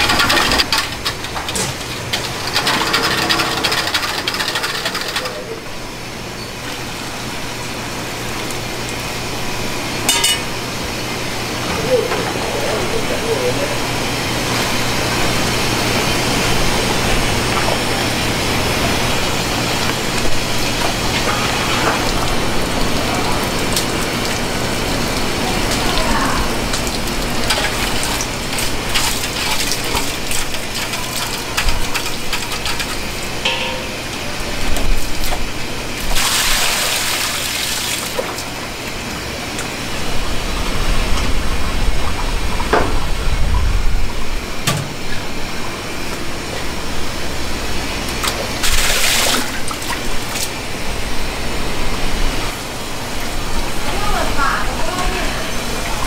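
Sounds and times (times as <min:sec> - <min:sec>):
steady machine hum: 0:00.0 - 0:56.0
metal utensils clinking on pots: 0:10.1 - 0:10.5, 0:33.5 - 0:34.2.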